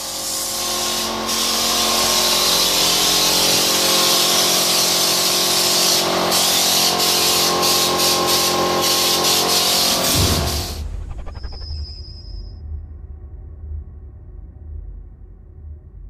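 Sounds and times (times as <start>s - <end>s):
steady hum: 10.1s - 12.2s.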